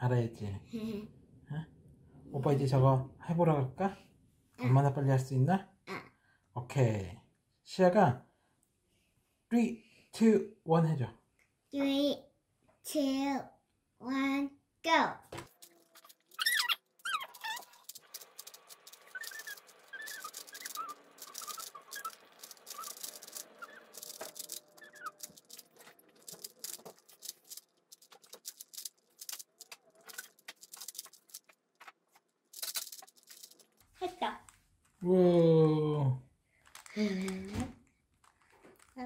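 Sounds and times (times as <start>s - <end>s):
puzzle cube clicking turns: 15.5s - 32.0s, 32.6s - 33.8s
faint high squeaks: 15.6s - 25.9s.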